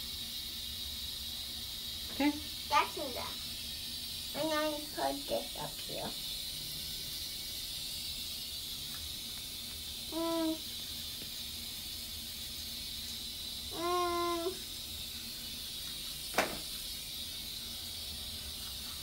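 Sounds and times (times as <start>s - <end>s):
toothbrush hiss: 0.0s - 19.0s
child humming: 10.1s - 10.6s, 13.8s - 14.6s.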